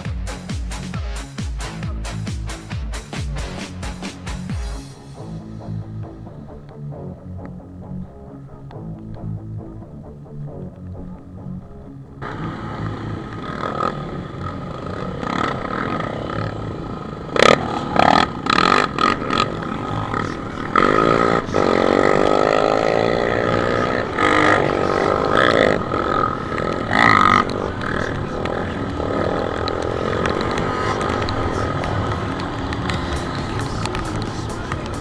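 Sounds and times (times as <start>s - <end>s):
motorcycle engine revving: 12.2s - 35.0s.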